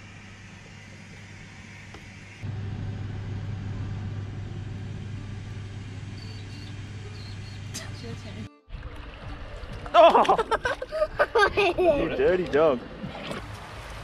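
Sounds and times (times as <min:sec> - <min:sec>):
air conditioner humming: 0:00.0 - 0:08.5.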